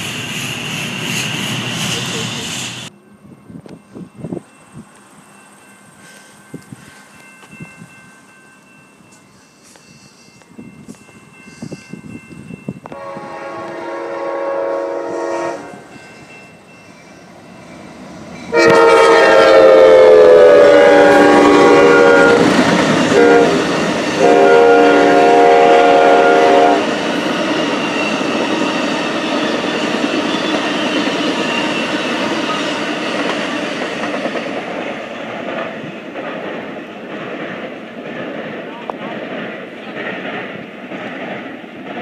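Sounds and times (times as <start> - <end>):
train wheels running on rails: 0.0 - 42.0
train horn blasts: 12.9 - 15.9, 18.5 - 26.9.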